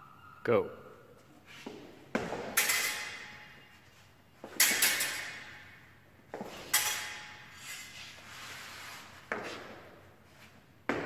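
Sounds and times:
fencing blades clashing: 0:01.8 - 0:08.3.

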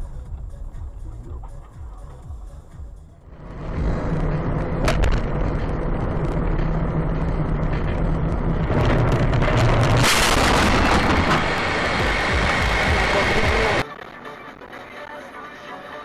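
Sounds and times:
car engine and road drone: 0:00.0 - 0:16.0
car crash: 0:03.6 - 0:13.8.

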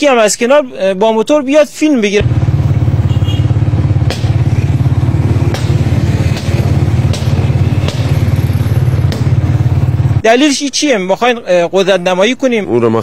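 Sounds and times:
motorcycle engine rumbling: 0:02.0 - 0:10.5
sharp knocks: 0:04.0 - 0:09.6.

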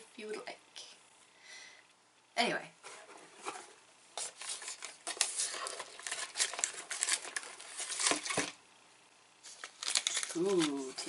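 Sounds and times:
cardboard box rustling and crinkling: 0:03.3 - 0:08.6.

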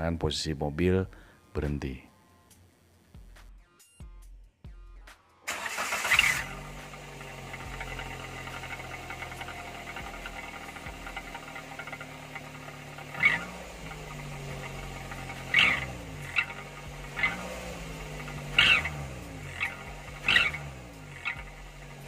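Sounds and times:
engine idling: 0:05.5 - 0:22.0
engine revving with hissing whoosh: 0:05.5 - 0:22.0.

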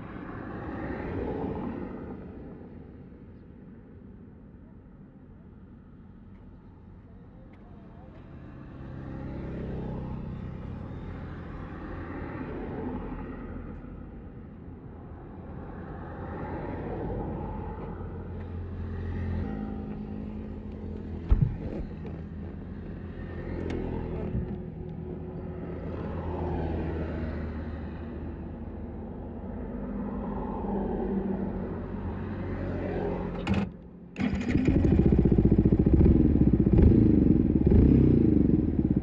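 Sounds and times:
sharp thump: 0:21.2 - 0:22.0
motorcycle engine revving: 0:34.2 - 0:39.0.

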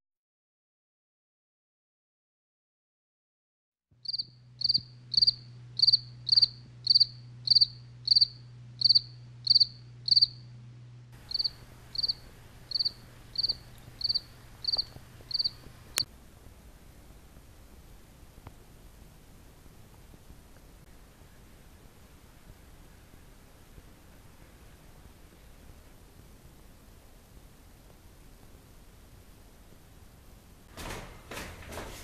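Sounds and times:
cricket chirping: 0:04.0 - 0:10.4, 0:11.2 - 0:16.1
low steady hum: 0:04.0 - 0:30.7.

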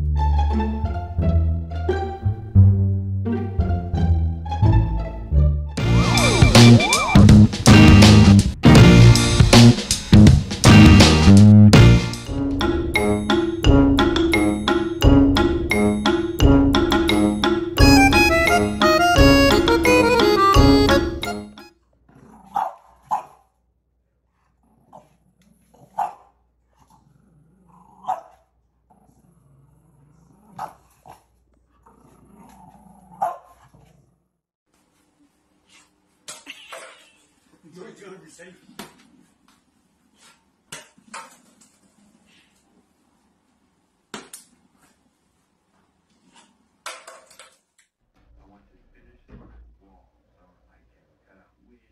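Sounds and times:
background music: 0:00.0 - 0:21.7
dog growling: 0:22.1 - 0:23.2, 0:24.6 - 0:26.2, 0:26.8 - 0:34.3
puppy barking: 0:22.5 - 0:23.5, 0:25.8 - 0:26.3, 0:28.0 - 0:28.4, 0:33.1 - 0:33.7.

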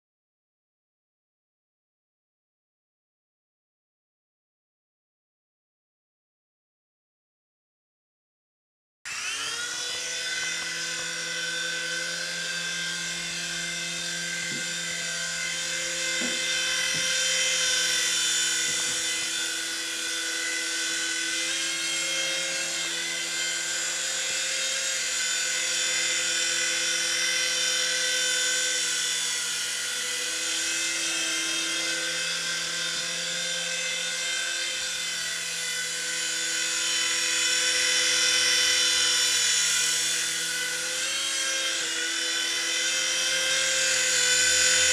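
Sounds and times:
electric motor whine: 0:09.1 - 0:44.9
rotor blades whirring: 0:09.1 - 0:44.9.

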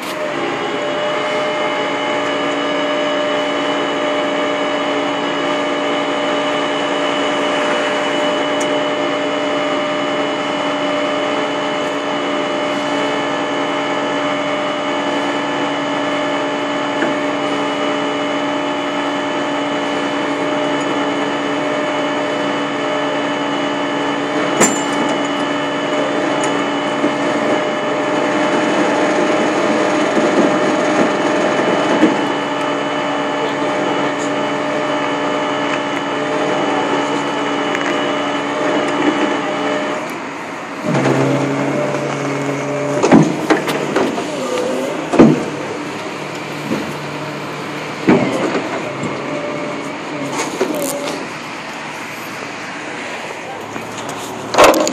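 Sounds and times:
truck engine droning: 0:00.0 - 0:54.9
sharp knocks and clanks: 0:40.8 - 0:44.4, 0:45.1 - 0:45.7.

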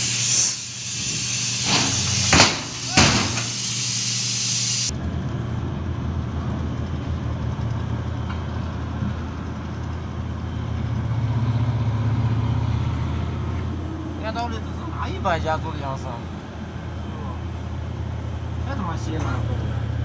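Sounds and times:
steady hiss: 0:00.0 - 0:04.9
heavy diesel engines droning: 0:00.0 - 0:20.0
loader bucket dumping into truck: 0:01.0 - 0:03.6.

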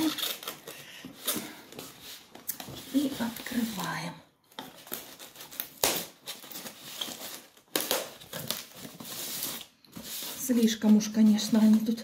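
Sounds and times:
scissors cutting packing tape: 0:00.0 - 0:01.4
tape crinkling and tearing: 0:00.0 - 0:01.6, 0:04.6 - 0:12.0.

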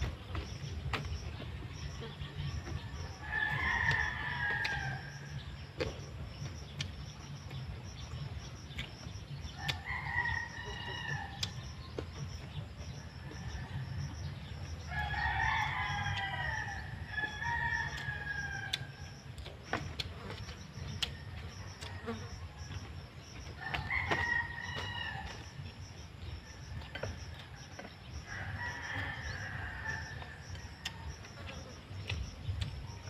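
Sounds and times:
rooster crowing: 0:03.0 - 0:05.3, 0:09.6 - 0:11.5, 0:14.9 - 0:19.2, 0:23.6 - 0:25.6, 0:28.3 - 0:31.6.

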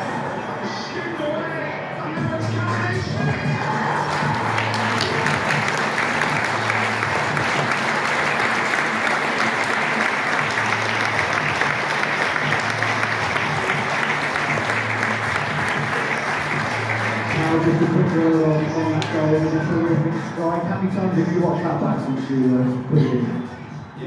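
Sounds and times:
audience applauding: 0:03.3 - 0:19.1.

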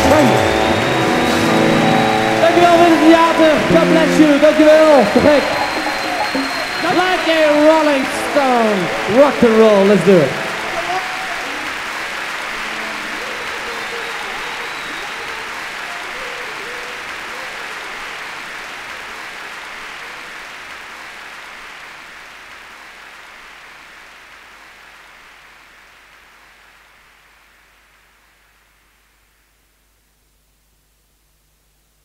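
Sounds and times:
audience applauding: 0:00.0 - 0:27.6.

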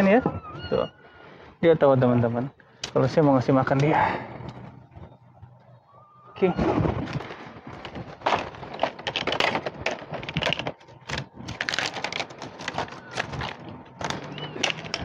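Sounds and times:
plastic packaging crinkling: 0:07.1 - 0:15.0.

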